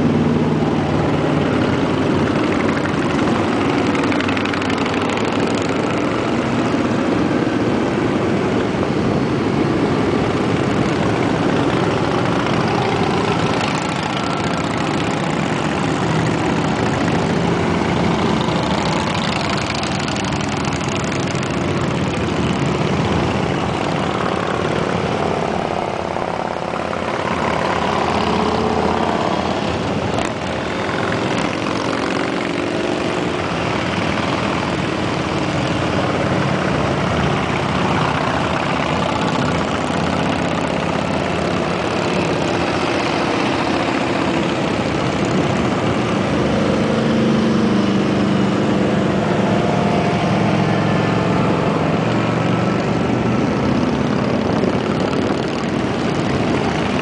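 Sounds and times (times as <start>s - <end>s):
motorcycles riding past: 0.0s - 57.0s.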